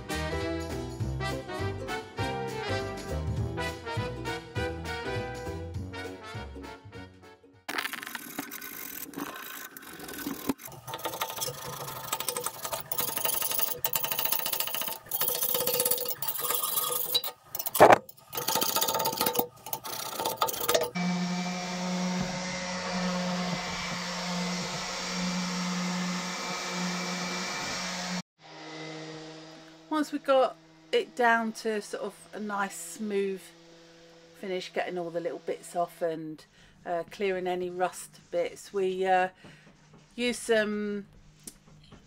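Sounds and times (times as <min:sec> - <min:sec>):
power tools scraping steel: 0:07.7 - 0:28.2
tool motor running steadily: 0:07.7 - 0:28.2, 0:29.3 - 0:34.6.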